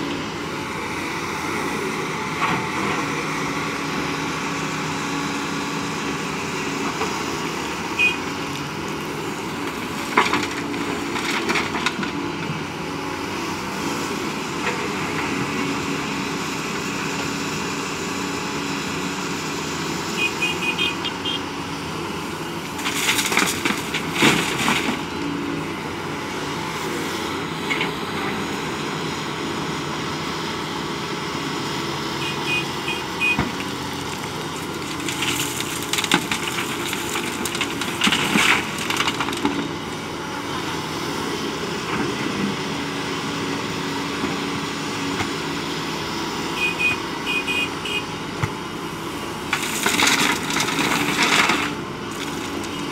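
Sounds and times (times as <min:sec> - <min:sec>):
excavator diesel engine running: 0:00.0 - 0:52.9
gravel clattering into truck: 0:22.7 - 0:25.1, 0:34.1 - 0:39.7, 0:49.5 - 0:52.9.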